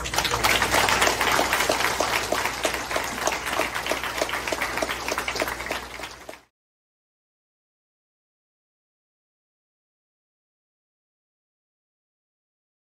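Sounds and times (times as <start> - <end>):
crowd applauding: 0.0 - 6.5
person clapping close by: 0.0 - 6.5.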